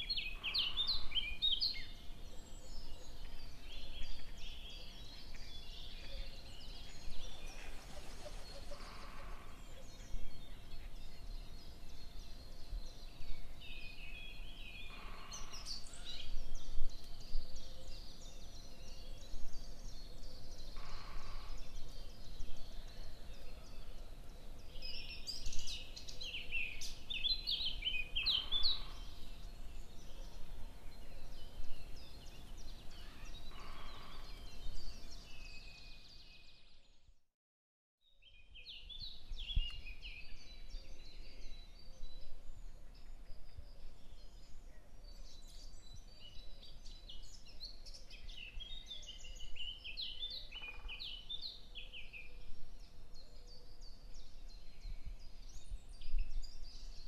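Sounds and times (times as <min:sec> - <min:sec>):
low background noise: 0:00.0 - 0:36.2
small birds chirping: 0:00.0 - 0:37.1, 0:38.1 - 0:57.0.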